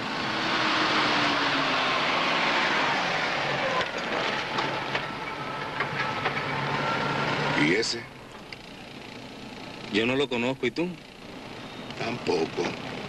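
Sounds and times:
car engine and tyres rushing: 0.0s - 10.0s.

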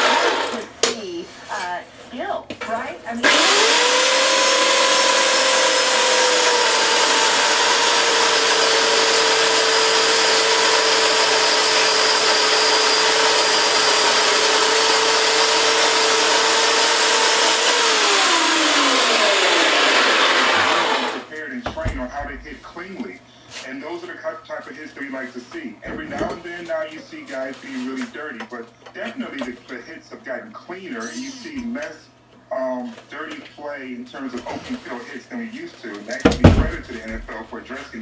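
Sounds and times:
chainsaw cutting log: 0.0s - 0.6s, 3.2s - 21.3s.

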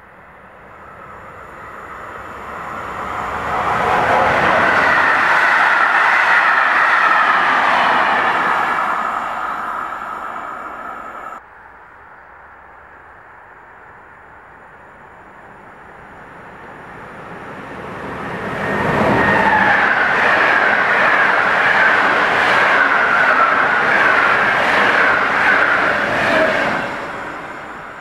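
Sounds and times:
train wheels rumbling and clattering: 16.6s - 28.0s.

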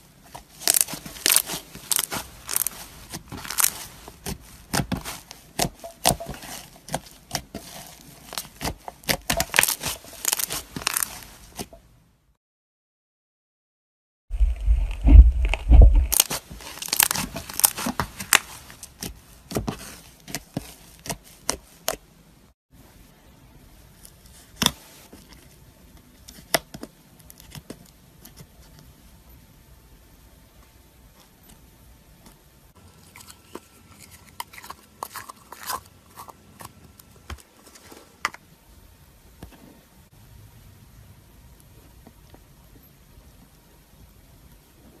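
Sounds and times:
slime crackling and popping: 0.4s - 11.6s, 14.5s - 19.1s
low handling thumps: 14.3s - 16.2s.

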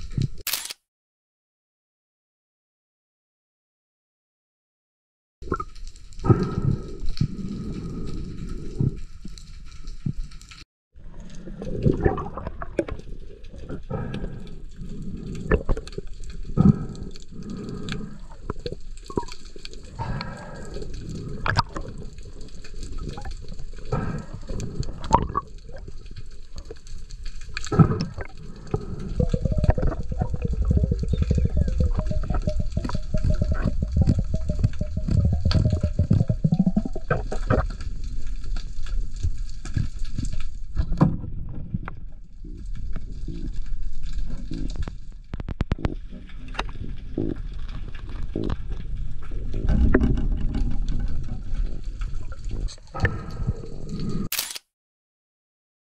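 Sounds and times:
underwater knocks and sloshing: 11.2s - 13.7s, 21.0s - 53.4s
low underwater rumble: 27.8s - 53.9s.

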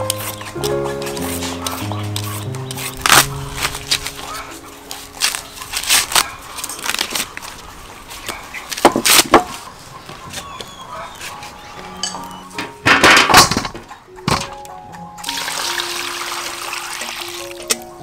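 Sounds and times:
corn husks tearing: 0.0s - 9.4s.

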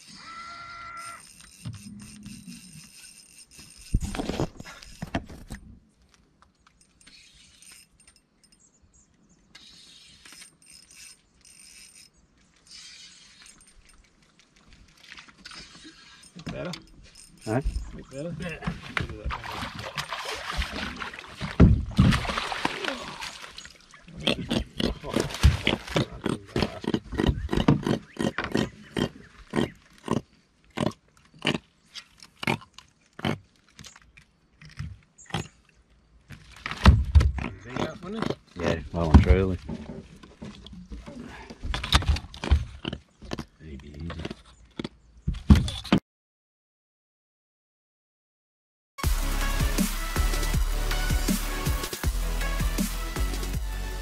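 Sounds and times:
fishing reel whirring and clicking: 0.8s - 5.5s, 6.8s - 8.6s, 9.6s - 14.0s, 15.5s - 18.0s
fish grunting: 24.0s - 31.7s.

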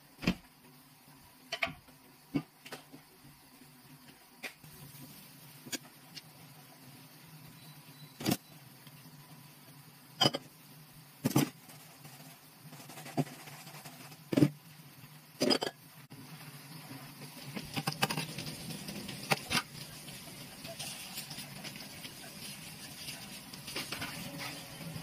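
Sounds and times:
glass dishes clinking in sink: 10.2s - 10.5s, 15.4s - 15.8s
rubbing and small clatter: 11.3s - 14.5s.

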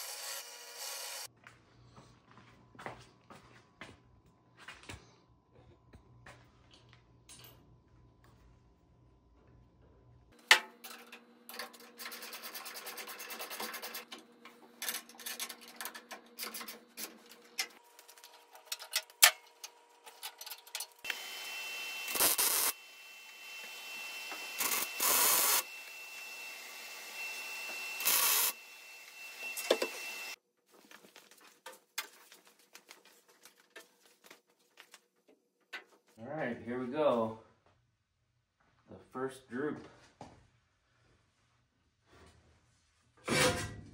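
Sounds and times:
welder crackling on steel: 15.0s - 26.3s, 27.7s - 30.4s.

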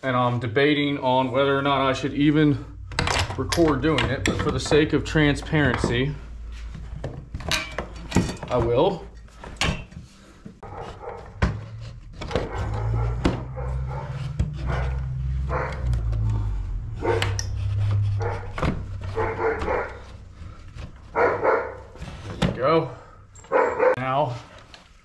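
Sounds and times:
low steady hum: 0.2s - 23.6s
parts clicking and knocking: 2.8s - 16.3s
dog barking: 10.6s - 11.4s, 12.3s - 16.0s, 19.1s - 20.2s, 21.1s - 22.0s, 23.5s - 24.0s.

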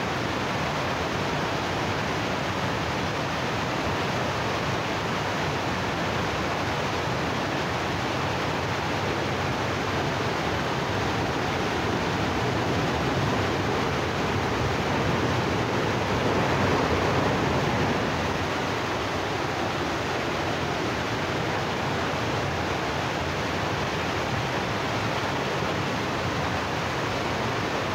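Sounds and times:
river water rushing: 0.0s - 27.9s.

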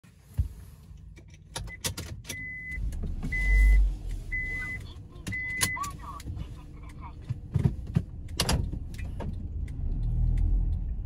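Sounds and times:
car warning chime beeping: 1.7s - 7.0s.

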